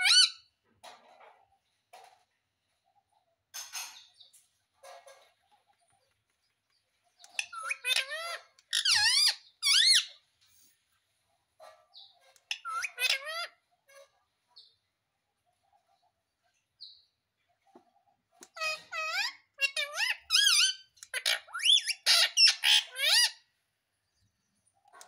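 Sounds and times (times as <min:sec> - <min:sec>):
parrot calling shrilly: 0:00.0 - 0:00.4, 0:12.5 - 0:13.6, 0:18.6 - 0:23.4.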